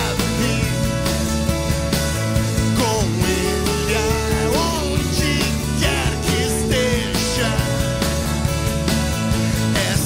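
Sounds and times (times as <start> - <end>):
person singing: 0.0 - 1.2, 2.7 - 8.3, 9.5 - 10.0
acoustic guitar: 0.0 - 10.0
bass: 0.0 - 10.0
drums: 0.0 - 10.0.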